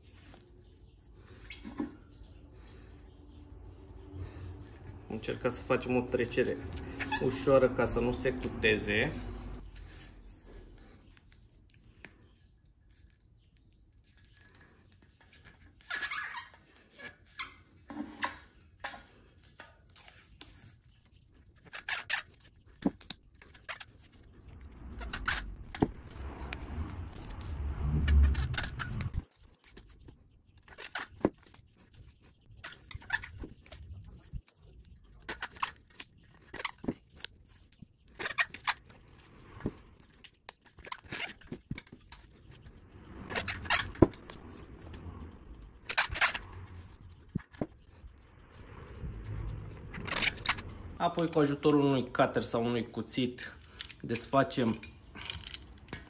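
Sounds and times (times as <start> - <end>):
tape peeling and crackling: 0.0 - 8.8, 9.4 - 51.6
low rumble of wheel: 24.0 - 29.3, 41.8 - 51.6.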